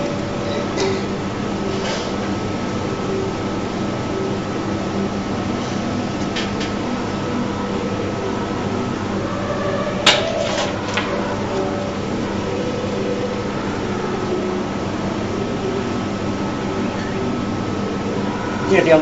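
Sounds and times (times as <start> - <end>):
background hum and hiss: 0.0 - 19.0.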